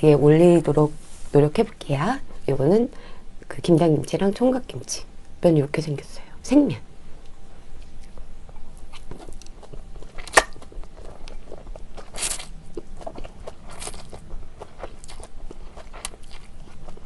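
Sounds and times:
chewing: 7.8s - 17.0s.

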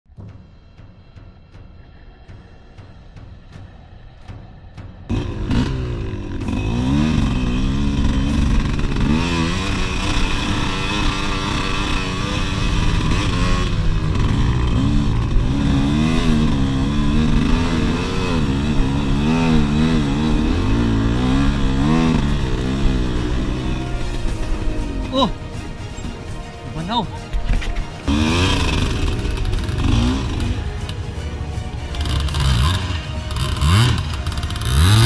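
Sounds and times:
dirt bike engine revving: 5.1s - 25.0s, 28.0s - 31.1s, 31.8s - 35.0s.

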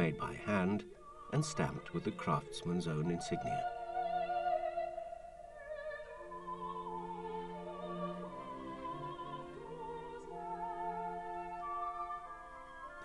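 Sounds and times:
operatic classical music: 0.0s - 13.0s.

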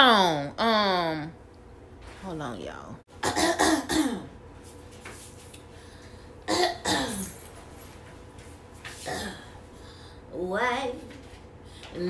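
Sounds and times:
woman's cough-like vocal sounds: 3.2s - 4.4s, 6.5s - 7.4s.

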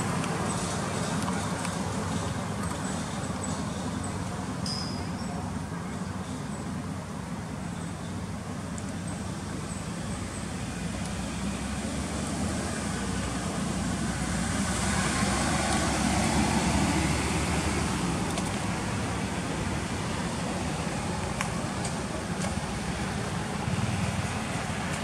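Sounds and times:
vehicle passing by: 11.2s - 25.0s.

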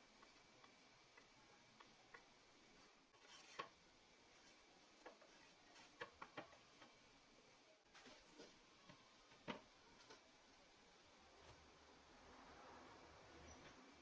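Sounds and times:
faint clicks and taps: 4.4s - 7.0s, 7.9s - 10.3s.

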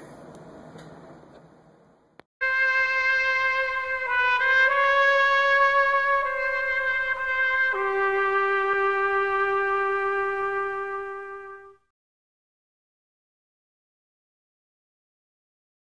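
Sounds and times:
brass horn holding a note: 2.4s - 11.9s.

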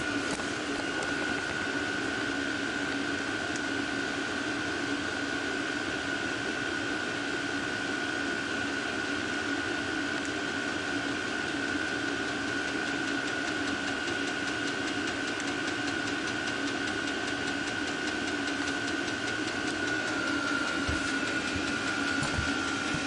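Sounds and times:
heater blower whine: 0.0s - 23.0s
fast regular ticking: 12.3s - 23.0s
soft bumps: 20.8s - 23.0s.

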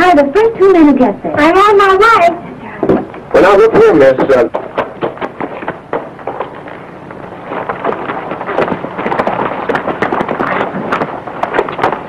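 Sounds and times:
film soundtrack hiss: 0.0s - 12.0s
horse hoofbeats on dirt: 2.8s - 12.0s.

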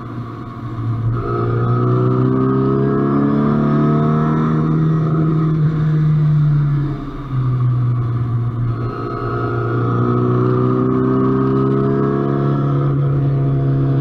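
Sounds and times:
car engine accelerating: 0.0s - 14.0s.

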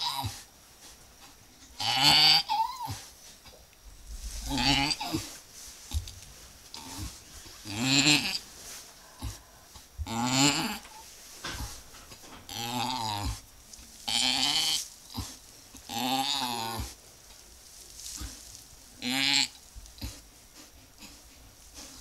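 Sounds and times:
sheep bleating: 4.4s - 5.2s.

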